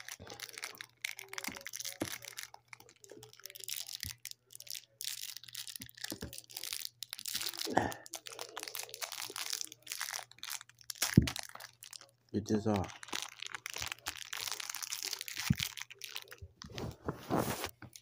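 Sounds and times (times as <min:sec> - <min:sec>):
rustling and crinkling: 0:12.8 - 0:18.0.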